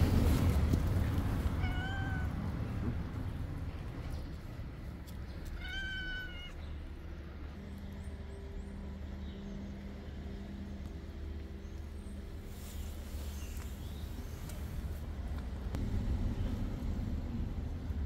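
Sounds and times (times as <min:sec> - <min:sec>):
cat meowing: 0:01.6 - 0:02.4, 0:05.6 - 0:06.6
low steady hum: 0:06.6 - 0:18.0.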